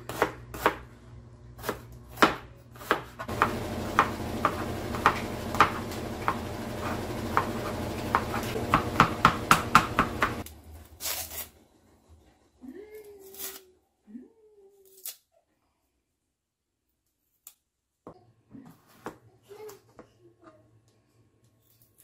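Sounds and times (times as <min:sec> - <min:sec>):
knife chopping on cutting board: 0:00.0 - 0:00.8, 0:01.6 - 0:10.5
steady low hum: 0:03.3 - 0:10.7.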